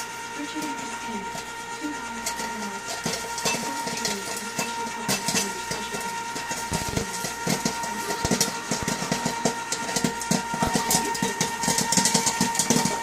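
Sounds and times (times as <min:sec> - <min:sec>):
popcorn machine hum: 0:00.0 - 0:13.0
popcorn kernels popping: 0:00.5 - 0:13.0.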